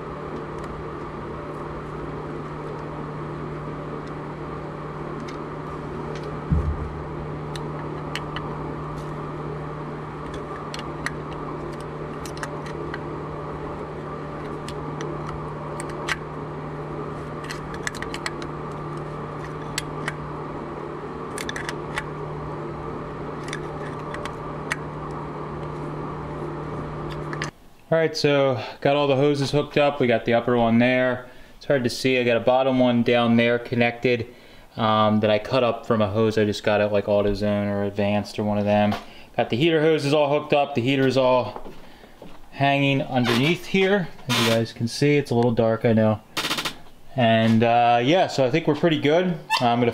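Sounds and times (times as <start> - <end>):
steady low hum: 0.0 - 49.9
loud knock: 6.5 - 7.0.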